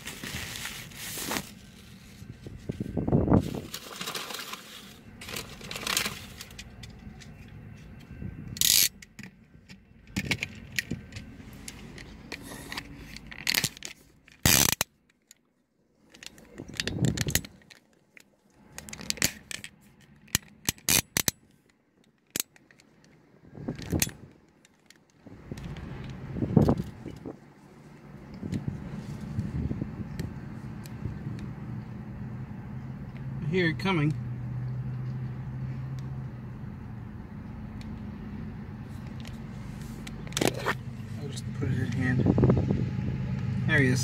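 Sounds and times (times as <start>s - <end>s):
low road traffic: 0.0s - 44.0s
camera handling clicks and bumps: 5.3s - 15.4s, 16.1s - 27.3s, 39.0s - 40.9s.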